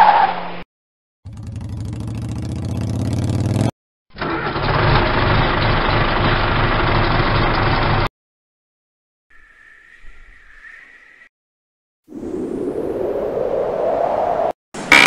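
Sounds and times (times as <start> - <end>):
quad bike engine revving: 1.3 - 3.7.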